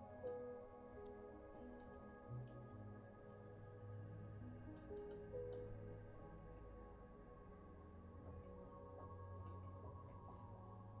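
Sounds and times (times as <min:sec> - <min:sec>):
soft ambient music: 0:00.0 - 0:11.0.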